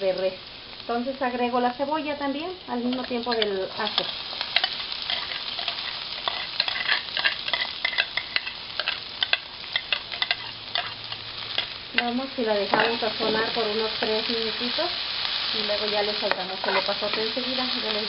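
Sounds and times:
onion sizzling in hot oil: 0.0 - 18.0
metal spoon clicking and scraping: 2.9 - 12.2.

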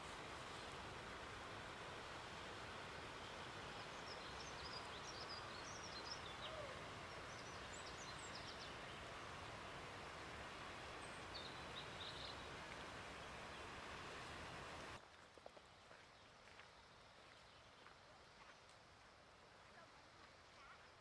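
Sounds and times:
small birds chirping: 3.2 - 9.3.

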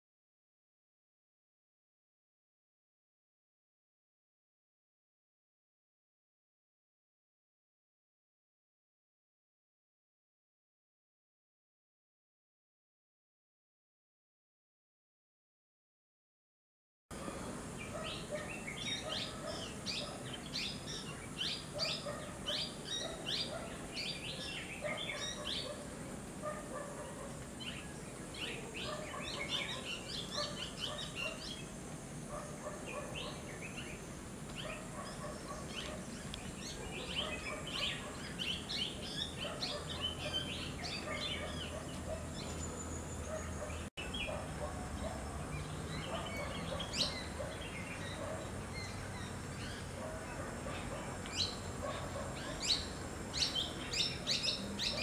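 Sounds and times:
birds chirping: 17.1 - 55.0
lower bird calls: 17.2 - 55.0.

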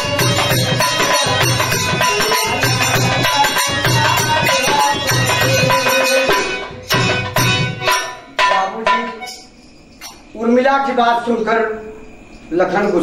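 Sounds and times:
hand drum rhythm: 0.0 - 9.5
jingling percussion: 0.0 - 13.0.

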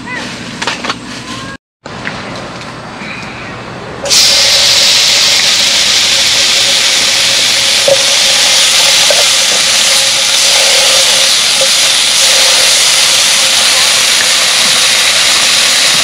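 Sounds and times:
meat sizzling in a hot pan: 4.1 - 16.0.

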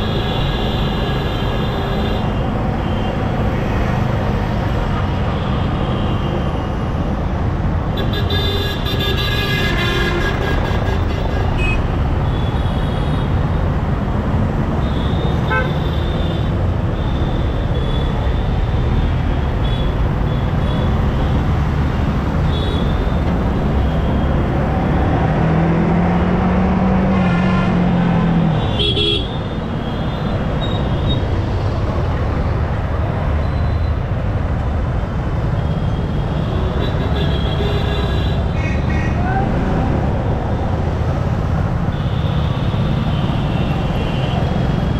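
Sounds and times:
vehicle horns honking: 8.0 - 13.2, 14.8 - 16.5, 28.6 - 30.8.

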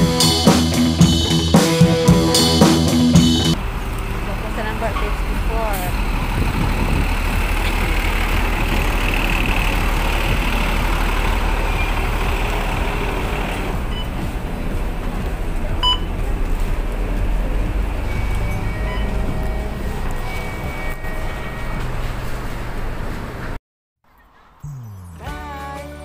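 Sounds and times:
diesel bus engine idling: 0.0 - 23.6
street noise: 0.0 - 26.0
fare card reader beep: 15.8 - 16.1.

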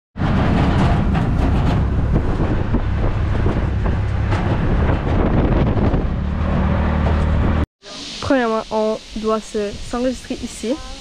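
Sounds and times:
wind buffeting microphone: 0.2 - 7.6
road noise: 0.2 - 11.0.

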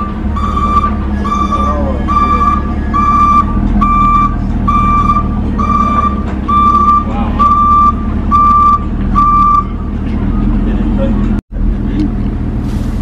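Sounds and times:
reversing alarm beeping: 0.0 - 9.8
engine idling: 0.0 - 13.0.

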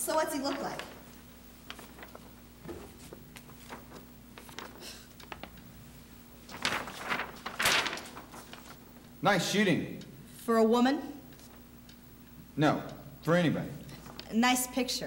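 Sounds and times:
low steady hum: 0.0 - 15.0
rustling: 0.3 - 9.1.

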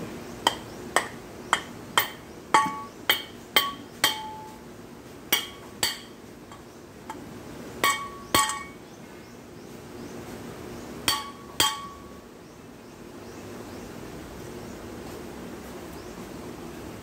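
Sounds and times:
mallet hitting metal housing: 0.5 - 4.6, 5.3 - 6.2, 7.8 - 8.8, 11.1 - 12.1.

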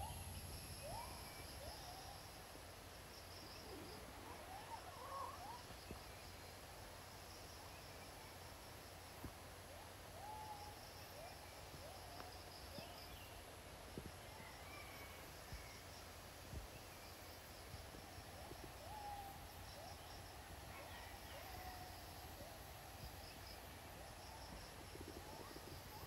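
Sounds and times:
insects trilling: 0.0 - 6.5
soft steady hiss: 0.0 - 26.0.

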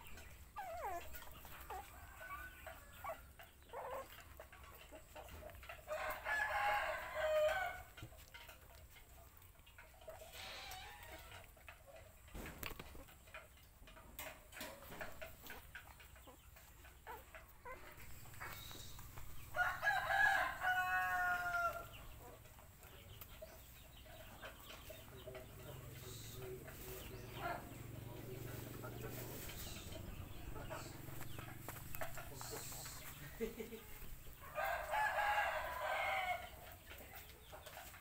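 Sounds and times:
puppies suckling: 0.0 - 5.6, 14.8 - 19.4
rooster crowing: 5.9 - 7.9, 19.5 - 21.9, 34.4 - 36.6.

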